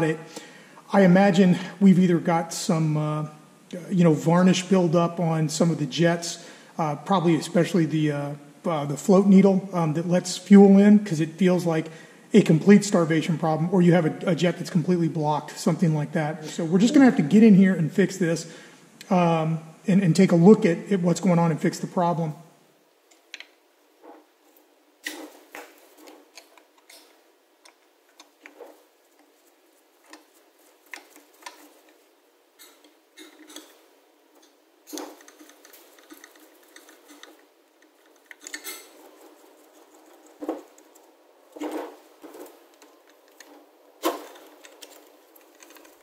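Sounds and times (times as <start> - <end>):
screwdriver and parts clicking: 32.6 - 33.8, 34.4 - 39.0.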